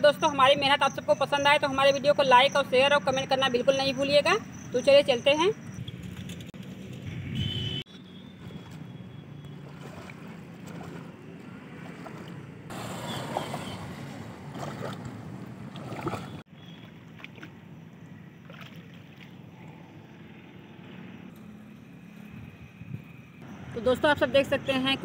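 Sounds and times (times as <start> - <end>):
water sloshing and splashing: 8.1 - 19.8.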